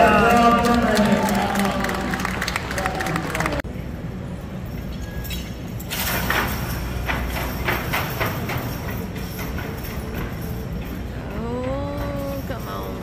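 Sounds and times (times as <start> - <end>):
low rumble of indoor arena: 0.0 - 13.0
horses and sled knocking and rattling: 5.2 - 13.0.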